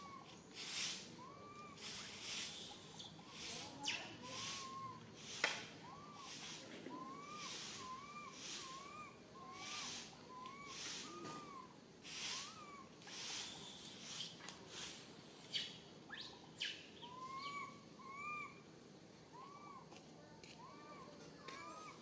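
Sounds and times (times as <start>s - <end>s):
high hissy buzzing: 0.0s - 6.7s, 7.4s - 8.8s, 9.6s - 16.1s
short arched animal calls: 5.8s - 14.3s.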